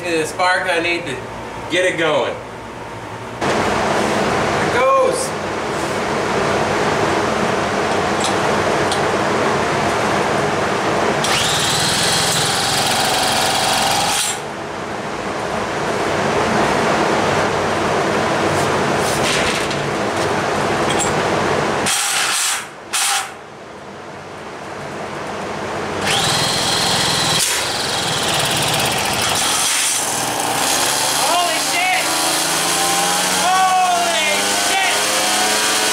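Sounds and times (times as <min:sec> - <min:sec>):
power drill motor whining: 0:11.2 - 0:14.4, 0:26.0 - 0:30.8
moped engine turning over: 0:26.0 - 0:31.0.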